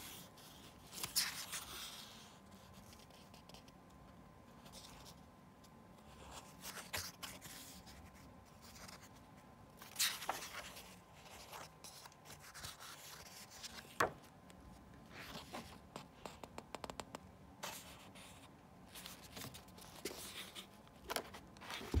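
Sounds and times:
book pages rustling: 0.4 - 3.7, 6.0 - 9.2, 9.8 - 16.1, 18.9 - 22.0.

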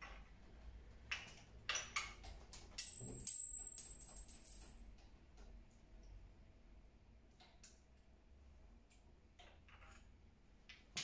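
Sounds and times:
thin high ringing tone: 2.8 - 4.8.

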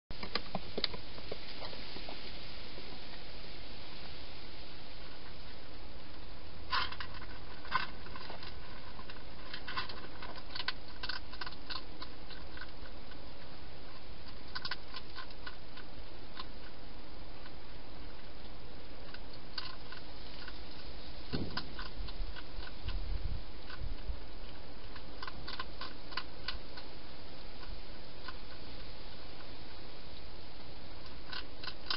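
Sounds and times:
steady background hiss: 0.1 - 31.9
hedgehog crunching food: 4.8 - 31.9
low thump: 21.3 - 21.8.

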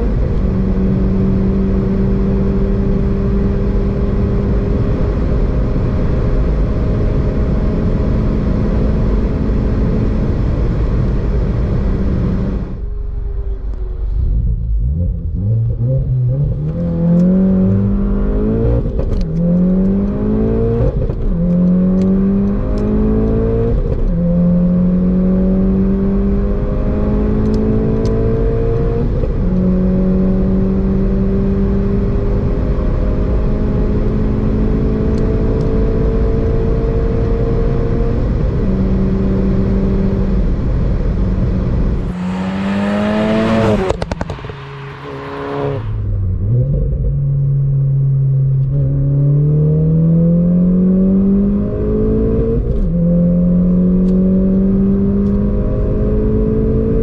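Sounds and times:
car engine accelerating: 0.0 - 57.0
car accelerating past: 41.4 - 47.0.

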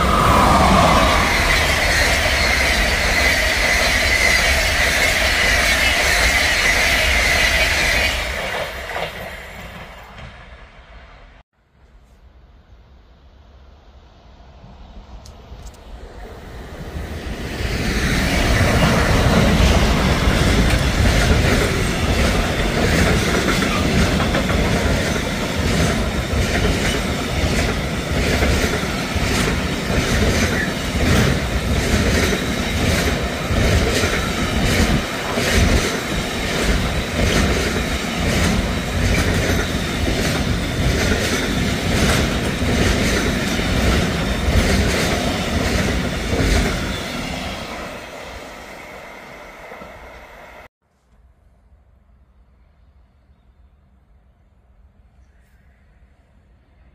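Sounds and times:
freight train rumbling: 0.0 - 11.4, 14.1 - 50.7
clickety-clack of wheels on rails: 1.1 - 10.8, 16.7 - 48.1.

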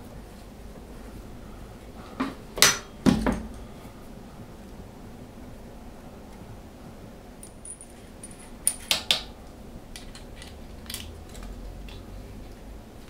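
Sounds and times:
small metal objects clinking: 7.4 - 8.9.

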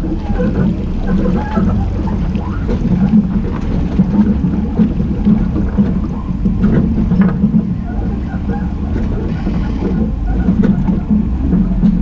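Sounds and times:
car engine running low rumble: 0.0 - 12.0.

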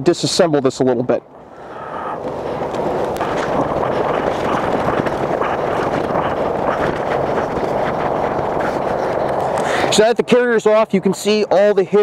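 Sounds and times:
fabric rustling and rubbing: 2.2 - 9.6.

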